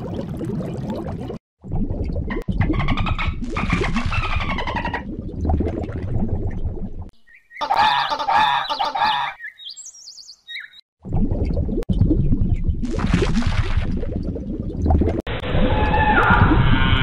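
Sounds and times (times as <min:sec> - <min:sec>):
churning underwater noise: 0:00.0 - 0:07.1, 0:11.0 - 0:17.0
faint high bird chirps: 0:07.2 - 0:10.8
harsh bird squawks: 0:07.4 - 0:09.8.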